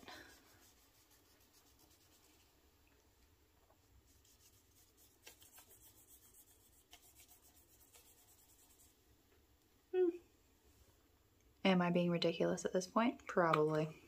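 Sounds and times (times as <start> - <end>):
cotton swab rubbing on paper: 0.3 - 2.6, 4.0 - 9.0.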